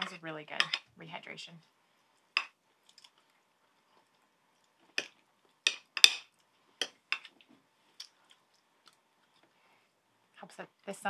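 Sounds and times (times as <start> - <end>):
cutlery clinking on ceramic dish: 0.0 - 0.8, 5.7 - 6.2.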